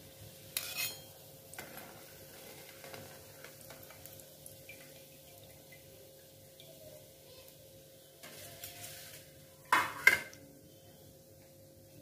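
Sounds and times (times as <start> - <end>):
oil sizzling: 0.0 - 12.0
metal spoon clinking on strainer: 0.6 - 1.1.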